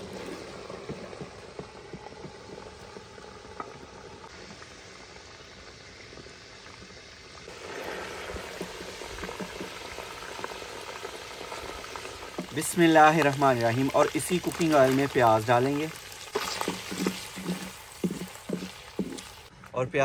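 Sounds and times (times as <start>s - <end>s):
hot oil bubbling and sizzling: 0.0s - 19.5s
ladle ticking: 8.2s - 19.5s.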